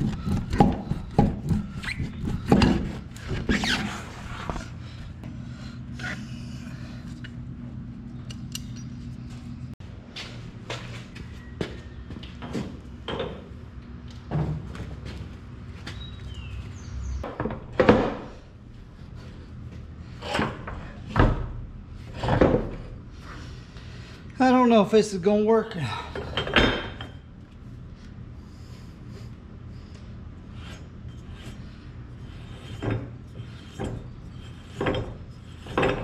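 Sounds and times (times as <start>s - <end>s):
tire and rim knocking: 0.0s - 3.5s
steady low hum: 0.0s - 36.0s.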